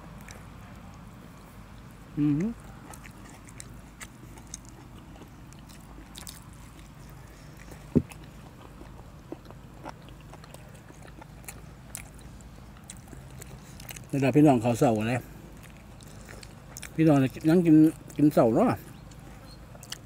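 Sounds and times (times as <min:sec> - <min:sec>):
biting and chewing food: 0:00.0 - 0:20.0
mouth noises: 0:02.1 - 0:02.8
short thump: 0:07.9 - 0:08.2.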